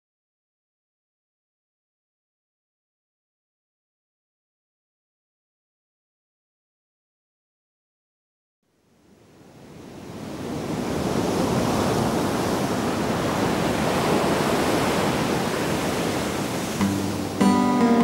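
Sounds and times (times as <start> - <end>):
sea waves washing: 9.0 - 18.0
acoustic guitar strums: 16.7 - 18.0.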